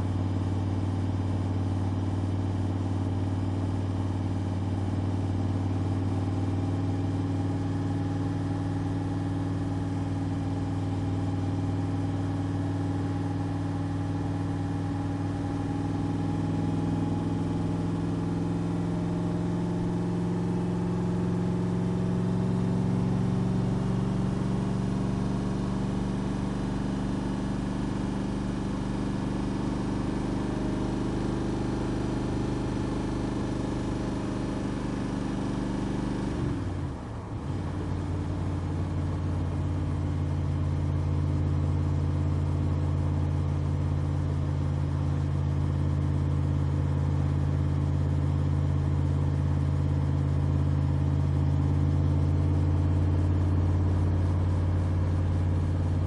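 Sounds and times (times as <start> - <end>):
deep car engine running: 0.0 - 56.0.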